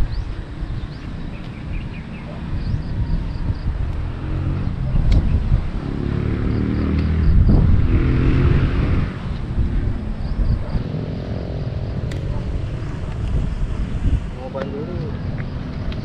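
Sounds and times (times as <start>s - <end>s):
vehicle engine passing: 2.2s - 16.0s.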